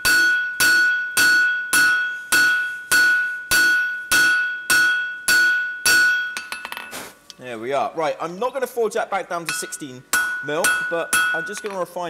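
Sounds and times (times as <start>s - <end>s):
hammer striking steel on anvil: 0.0s - 7.0s, 9.4s - 11.8s.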